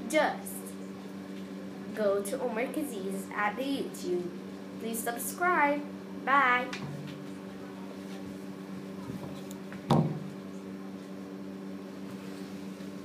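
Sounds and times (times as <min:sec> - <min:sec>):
low electrical hum: 0:00.0 - 0:13.0
thump: 0:09.9 - 0:10.2.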